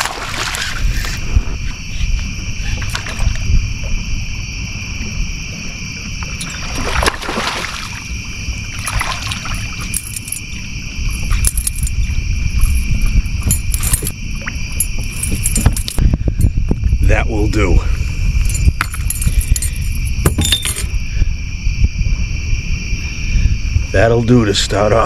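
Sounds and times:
night insects chirring: 0.0s - 25.0s
low rumble: 8.1s - 24.2s.

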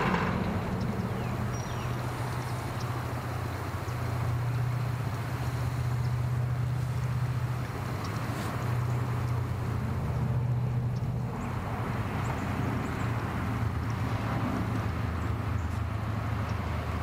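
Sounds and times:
outboard motor humming: 0.0s - 17.0s.

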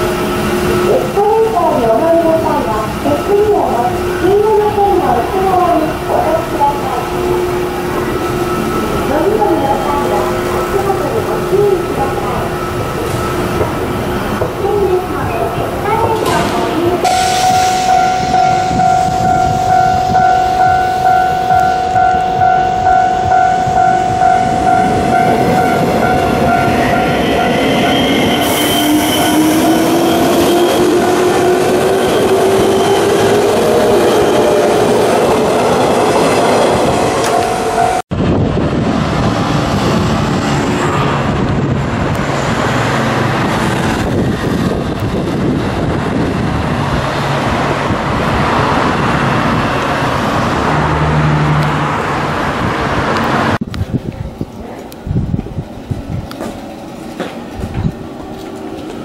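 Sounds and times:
level crossing alarm ringing: 0.0s - 38.1s
road traffic noise: 0.0s - 59.0s.

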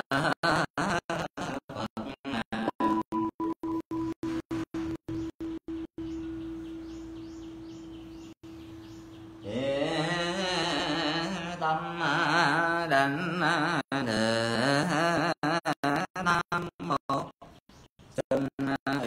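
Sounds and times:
melodic chanting: 4.8s - 15.3s.

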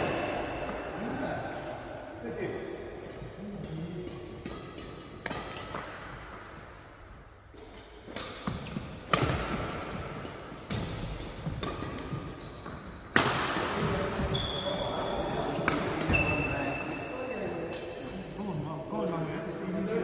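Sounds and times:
racket hitting shuttlecock: 3.1s - 14.4s, 15.0s - 16.3s
shoe squeaks on court floor: 12.3s - 13.1s, 14.2s - 15.0s, 16.1s - 16.7s.

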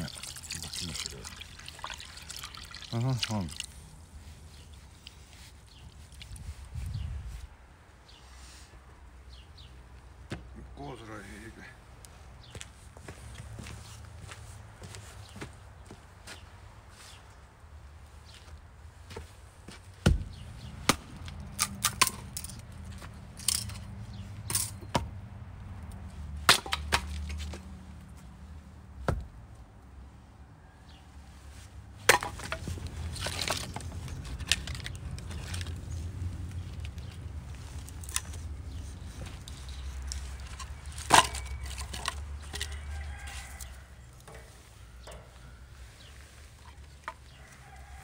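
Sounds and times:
wooden sticks knocking and clattering: 20.9s - 25.1s, 26.4s - 27.7s, 32.0s - 35.9s, 36.5s - 45.4s
axe splitting firewood: 26.4s - 27.6s, 29.0s - 29.4s, 32.1s - 35.7s, 40.3s - 42.8s.

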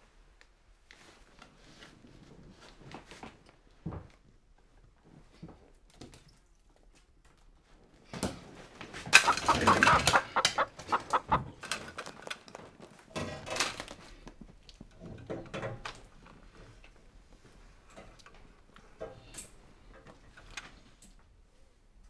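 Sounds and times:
chicken squawking and clucking: 9.2s - 11.6s
sharp knocks and clatter: 9.2s - 12.3s.

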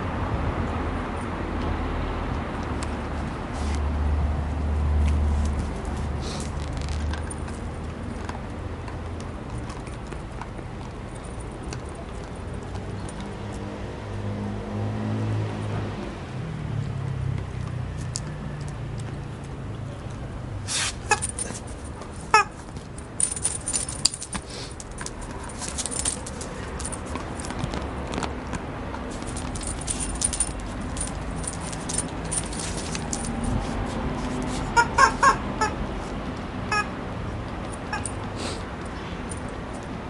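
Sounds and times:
rubber chicken toy squeaks: 21.0s - 21.3s, 22.3s - 22.6s, 34.7s - 35.8s, 36.7s - 36.9s.

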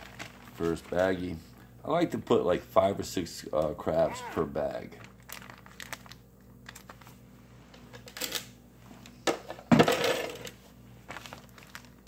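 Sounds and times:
plastic bag rustling: 0.0s - 1.3s, 4.1s - 7.2s, 11.0s - 12.0s.

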